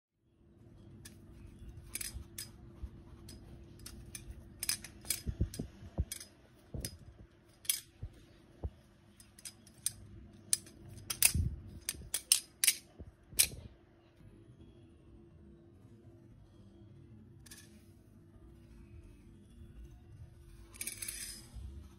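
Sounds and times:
butterfly knife metallic clicks: 9.2 - 13.6.

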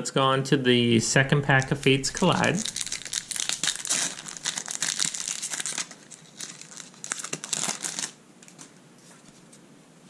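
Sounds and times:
foil wrapper crackling: 1.4 - 8.7.

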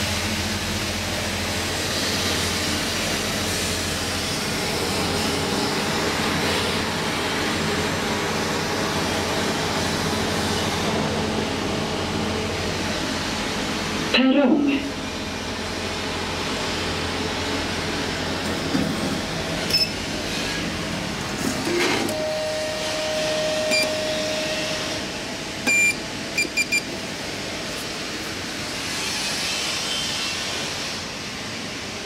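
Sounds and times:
steady station hum: 0.0 - 28.9
elevator call button beeping: 22.1 - 24.6, 25.7 - 26.9.

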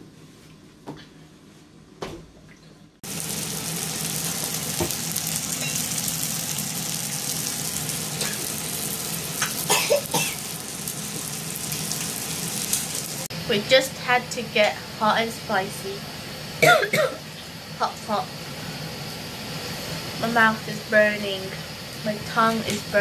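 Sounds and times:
meat sizzling on a grill: 3.0 - 13.6, 19.6 - 23.0.

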